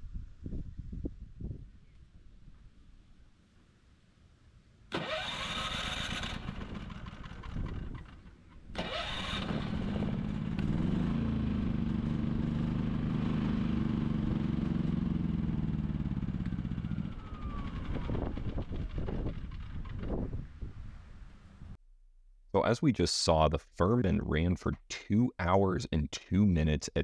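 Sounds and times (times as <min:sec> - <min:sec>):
generator electric starter cranking: 0:04.9 - 0:10.4
generator engine running: 0:04.9 - 0:20.6.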